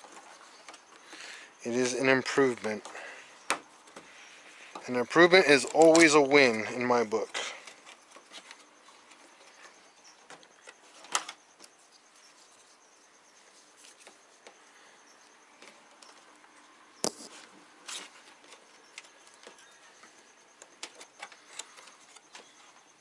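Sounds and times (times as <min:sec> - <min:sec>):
wiring harness rustling: 0:00.0 - 0:12.8.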